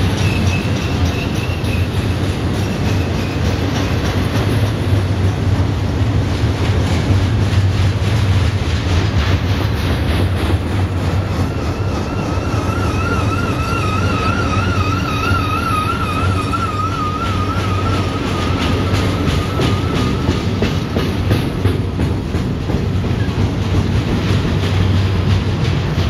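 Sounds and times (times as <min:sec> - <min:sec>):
wheels squealing: 0:00.0 - 0:04.1, 0:10.7 - 0:21.1
train wheels rumbling on rail: 0:00.0 - 0:26.0.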